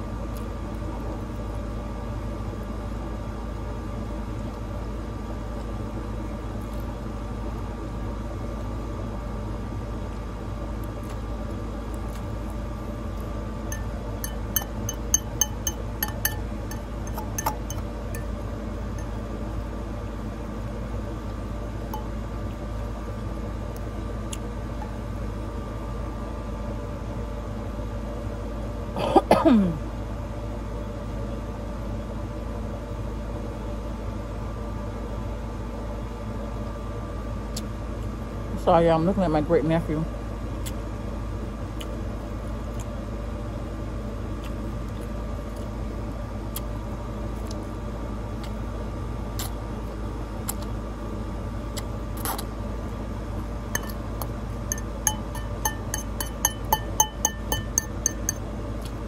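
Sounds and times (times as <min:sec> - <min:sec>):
low background hum: 0:00.0 - 0:59.0
fork clinking against ceramic bowl: 0:13.7 - 0:18.3, 0:53.8 - 0:54.0, 0:54.7 - 0:58.4.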